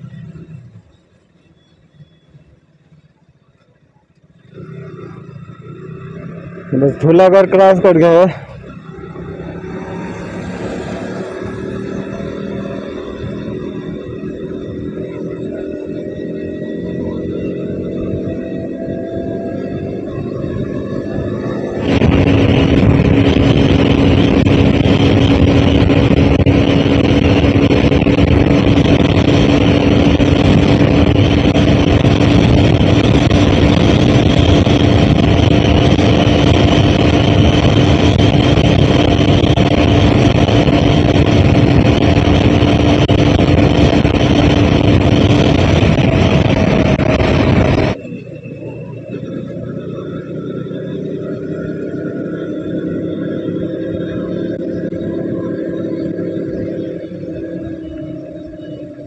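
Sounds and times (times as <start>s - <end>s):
motorcycle engine hum: 0.0s - 59.0s
wind rushing on microphone: 17.6s - 50.7s.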